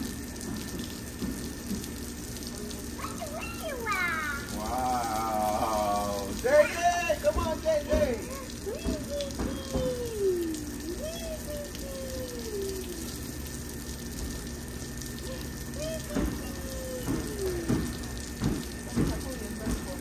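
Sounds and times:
water jets hissing onto concrete: 0:00.0 - 0:20.0
splashy knocks: 0:07.2 - 0:10.1, 0:15.8 - 0:20.0
child's drawn-out vocal sounds: 0:08.4 - 0:13.2.

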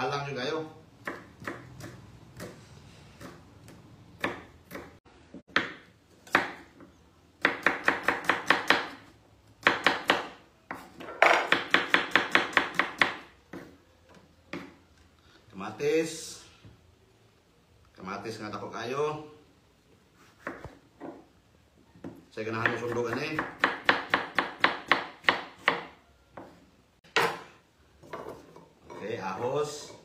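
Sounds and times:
knife chopping onion on board: 0:01.0 - 0:06.8, 0:07.4 - 0:13.8, 0:20.3 - 0:21.1, 0:22.0 - 0:27.5.

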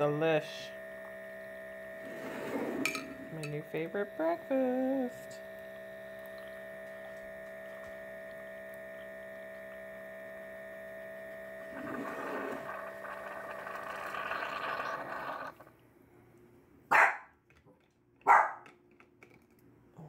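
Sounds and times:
coffee maker pump hum: 0:00.0 - 0:15.9
dog barking: 0:16.9 - 0:17.3, 0:18.2 - 0:18.7.

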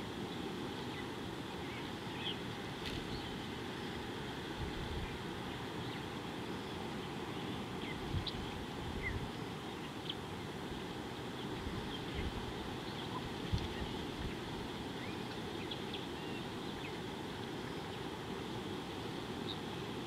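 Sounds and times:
wind rumbling on microphone: 0:02.8 - 0:06.0, 0:07.7 - 0:09.4, 0:11.4 - 0:15.1.

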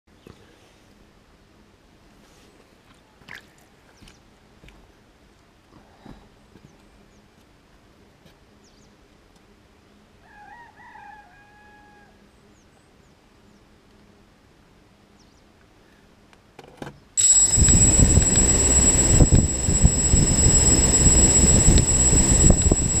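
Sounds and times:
drone motors whining: 0:17.2 - 0:23.0.

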